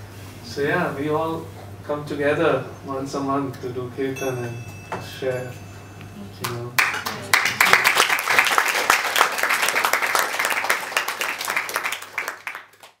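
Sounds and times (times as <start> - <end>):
people applauding: 6.4 - 13.0.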